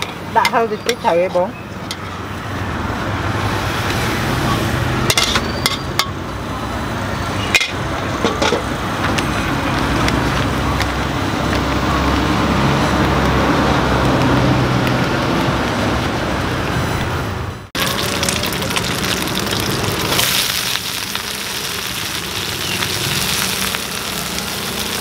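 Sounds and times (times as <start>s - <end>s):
street traffic noise: 0.0s - 25.0s
metal spatula clanking on wok: 5.1s - 6.2s, 7.5s - 8.7s.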